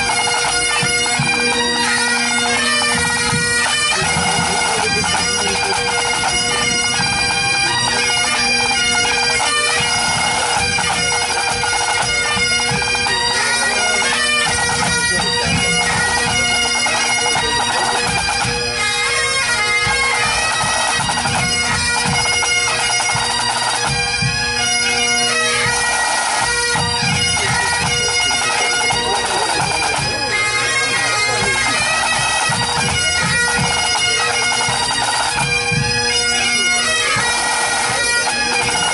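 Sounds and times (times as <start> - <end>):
bagpipes playing a tune: 0.0 - 38.9
band drums playing: 2.7 - 8.6, 9.8 - 18.6, 26.7 - 38.9.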